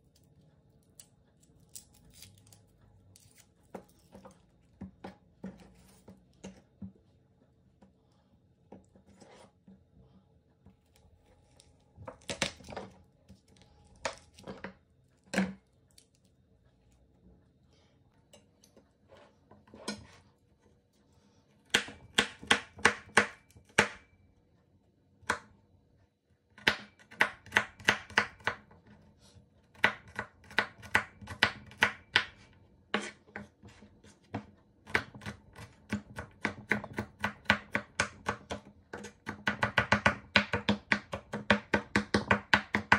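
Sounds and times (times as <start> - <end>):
knife chopping on wooden board: 21.7 - 24.1, 26.6 - 28.6, 29.7 - 42.9.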